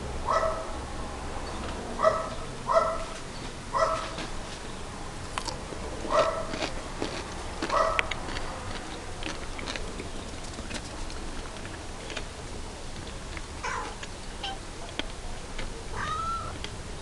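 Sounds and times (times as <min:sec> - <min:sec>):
cats meowing: 0:13.6 - 0:14.6, 0:15.9 - 0:16.6.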